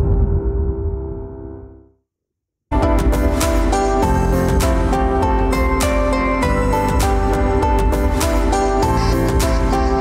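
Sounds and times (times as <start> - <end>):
instrumental music with beat: 2.7 - 10.0.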